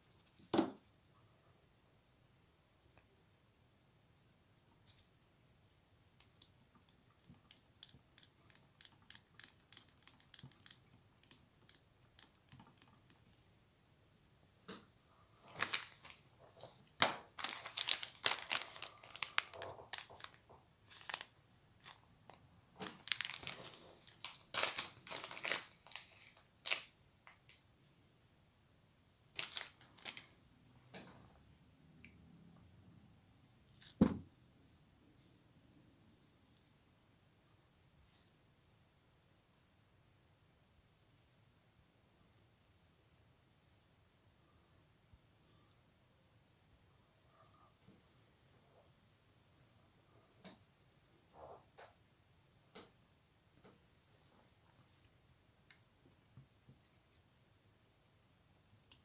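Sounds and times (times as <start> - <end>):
material crinkling and crackling: 15.4 - 27.6, 29.3 - 30.4.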